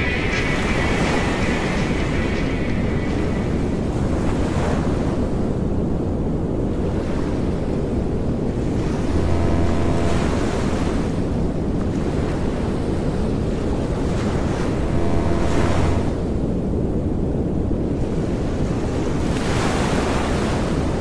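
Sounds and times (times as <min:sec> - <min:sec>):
wind on microphone: 0:00.0 - 0:21.0
surf washing on beach: 0:08.5 - 0:16.4
low drone: 0:08.7 - 0:11.4, 0:14.6 - 0:16.6.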